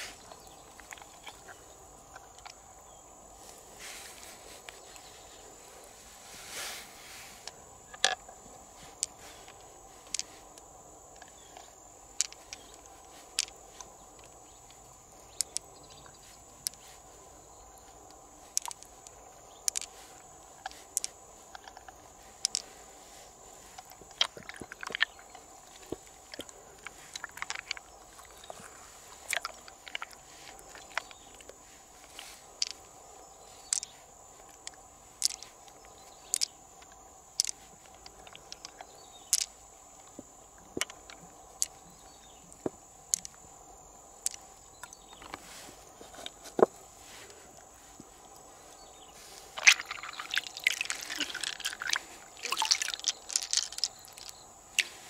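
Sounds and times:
pearls clicking together: 8.9s - 10.6s, 11.2s - 17.0s, 17.9s - 22.7s, 23.7s - 32.9s, 33.6s - 43.4s, 44.1s - 45.4s, 49.6s - 55.0s
wet scraping of mussel flesh: 49.4s - 55.0s.

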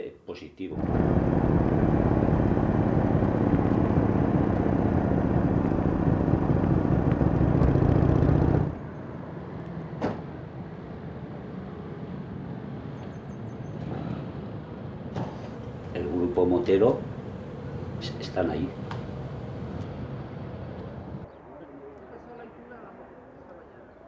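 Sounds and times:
motorcycle engine rumble: 0.8s - 8.8s
motorcycles idling: 0.8s - 8.8s, 15.6s - 21.2s.

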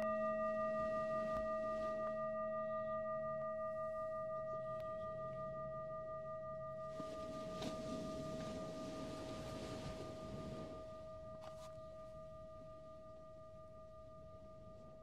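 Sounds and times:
singing bowl ringing: 0.0s - 15.0s
soft rushing noise: 6.9s - 11.6s.

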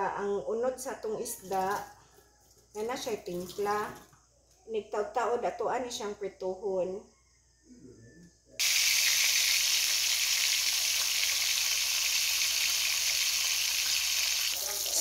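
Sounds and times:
fish sizzling in hot oil: 8.6s - 15.0s.

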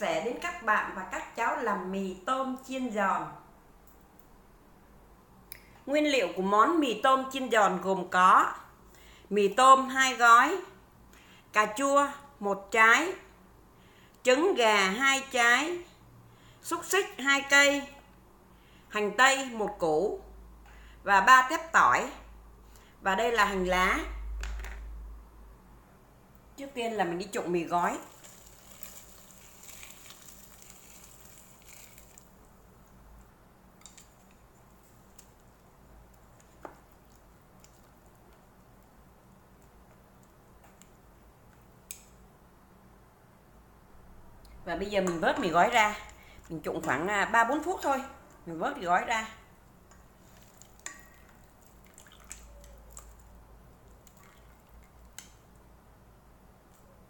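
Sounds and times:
water pouring into metal bowl: 27.9s - 32.4s, 50.3s - 53.3s, 54.0s - 55.2s
wet noodles squishing: 27.9s - 40.5s, 49.6s - 55.6s.

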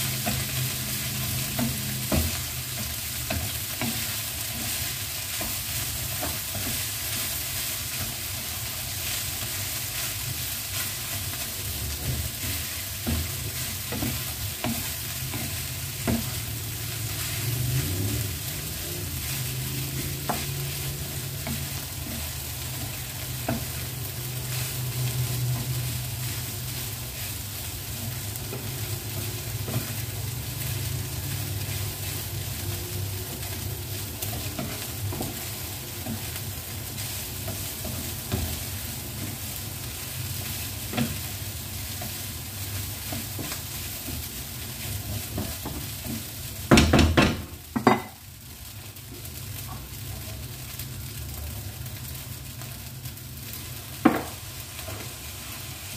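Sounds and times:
rice sizzling in a pan: 0.0s - 55.9s
wooden utensils scraping and tapping: 11.4s - 27.2s, 34.1s - 36.5s.

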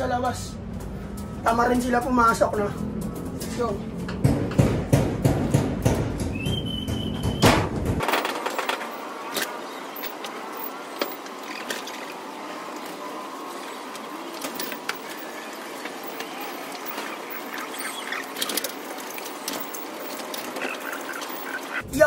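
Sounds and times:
pigeons calling: 13.6s - 21.8s.

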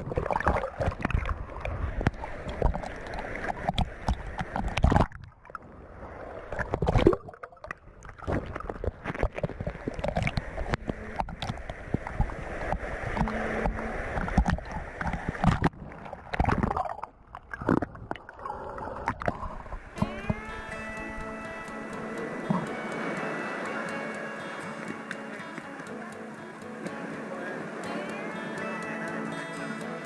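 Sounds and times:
muffled underwater gurgling: 0.0s - 5.2s, 6.5s - 20.5s
waves breaking against rock: 0.0s - 20.1s
water sloshing and splashing: 0.0s - 20.4s
music: 20.0s - 30.0s.

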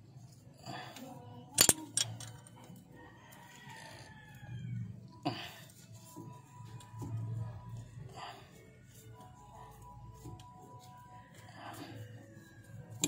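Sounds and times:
wrench clinking on metal bolts: 1.6s - 2.5s
rooster crowing: 2.9s - 5.2s.

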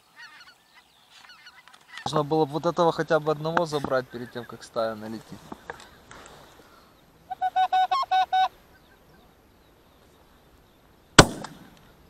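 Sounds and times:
goose honks: 7.3s - 8.6s.

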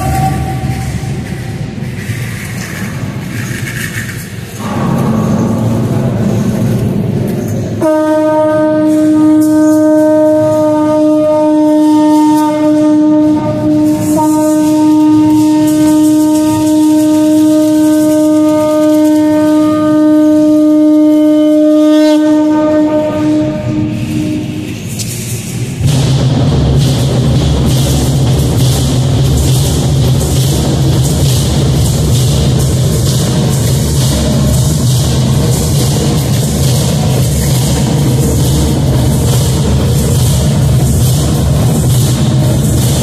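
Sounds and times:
conch shell trumpet note: 0.0s - 1.6s, 7.8s - 24.8s.

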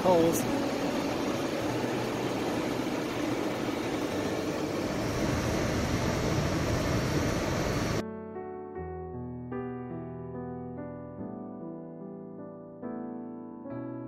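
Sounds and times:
soft piano music: 0.0s - 5.0s, 6.0s - 14.0s.

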